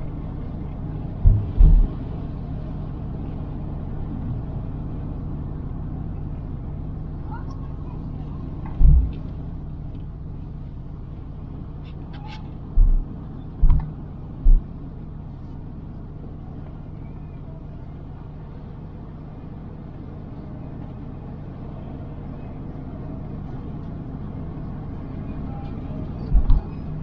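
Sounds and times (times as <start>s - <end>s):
car engine and road rumble: 0.0s - 27.0s
short low thumps: 1.2s - 2.1s, 8.7s - 9.3s, 12.7s - 14.8s.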